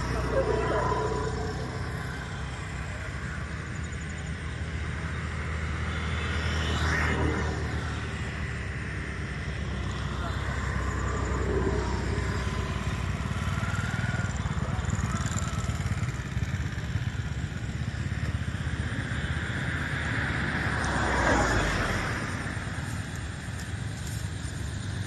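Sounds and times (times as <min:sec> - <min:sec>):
motor vehicle passing: 0:00.0 - 0:04.1, 0:04.8 - 0:16.3, 0:18.5 - 0:25.0
steady low rumble: 0:07.7 - 0:13.9.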